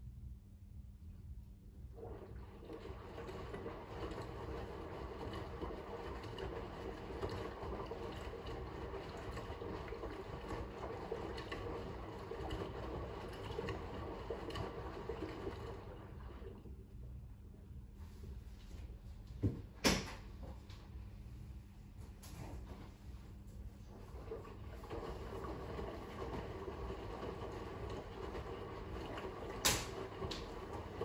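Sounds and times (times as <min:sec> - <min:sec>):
water sloshing in drum: 0:01.8 - 0:17.2, 0:22.4 - 0:31.0
washing machine tumbling: 0:01.8 - 0:31.0.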